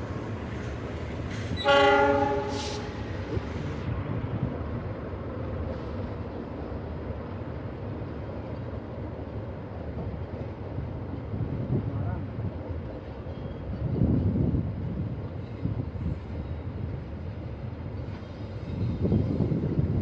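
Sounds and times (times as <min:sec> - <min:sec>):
train wheels rumbling on track: 0:00.0 - 0:20.0
train horn: 0:01.5 - 0:03.1.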